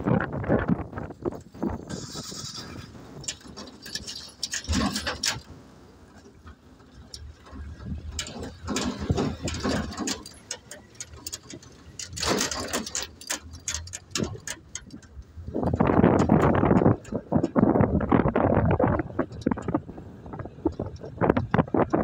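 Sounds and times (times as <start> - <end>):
low road rumble: 0.0 - 22.0
vehicle cabin rattling: 0.0 - 22.0
clicks and knocks: 6.1 - 22.0.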